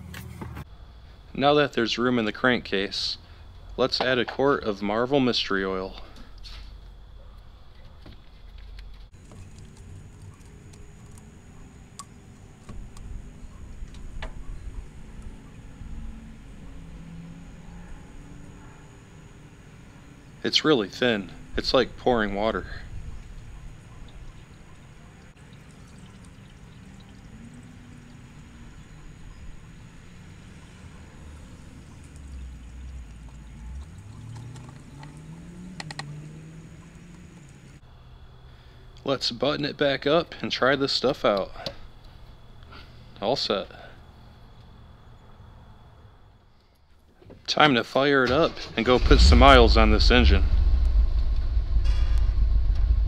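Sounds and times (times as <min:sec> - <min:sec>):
oil pouring into engine: 0:21.7 - 0:29.8, 0:31.4 - 0:37.7.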